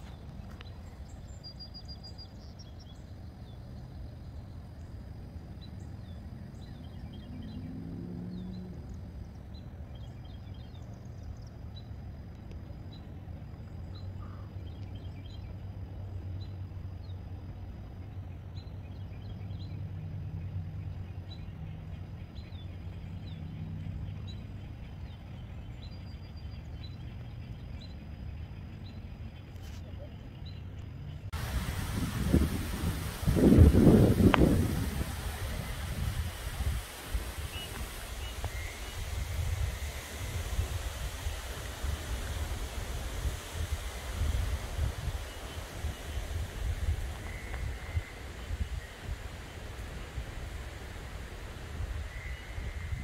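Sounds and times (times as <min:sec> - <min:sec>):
birds chirping faintly: 0:00.0 - 0:53.0
wind on microphone: 0:31.3 - 0:53.0.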